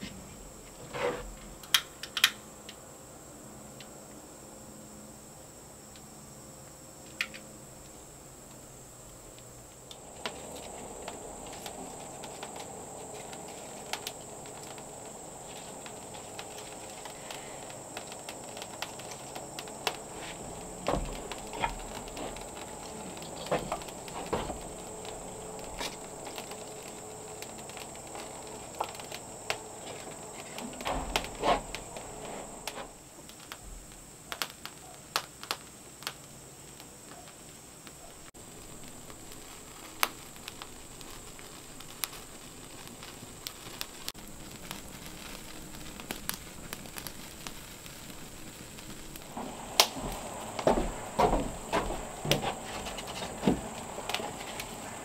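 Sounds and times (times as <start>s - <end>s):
kindling crackling: 0.0s - 55.0s
high insect buzz: 3.2s - 34.2s.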